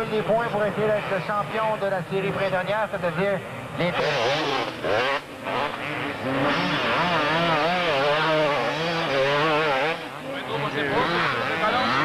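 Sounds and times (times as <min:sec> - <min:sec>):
motorcycle engine revving: 0:03.8 - 0:12.0.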